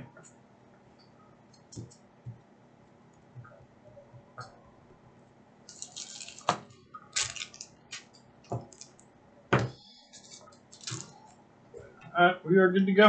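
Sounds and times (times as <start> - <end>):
rustling: 5.7 - 9.0.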